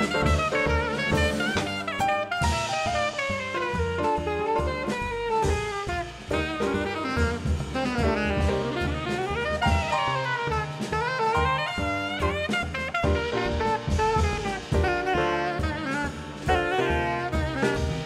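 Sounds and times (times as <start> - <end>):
drum kit beat: 0.0 - 18.0
grand piano: 0.0 - 18.0
saxophone: 0.0 - 18.0
upright double bass: 0.0 - 18.0.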